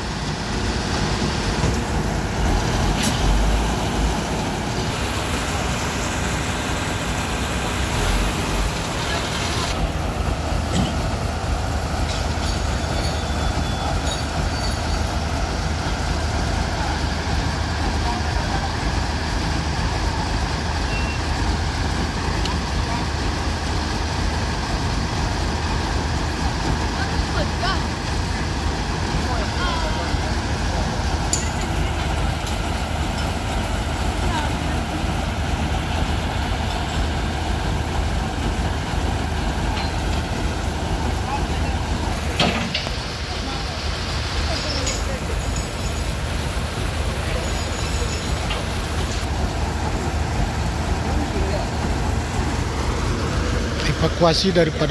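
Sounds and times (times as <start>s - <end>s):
diesel truck engine running: 0.0s - 54.9s
high metallic squeaks: 12.4s - 15.1s.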